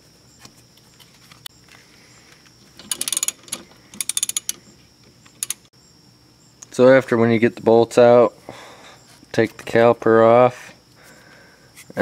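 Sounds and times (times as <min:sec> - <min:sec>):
socket ratchet clicking: 0:02.8 - 0:04.6, 0:05.2 - 0:05.7.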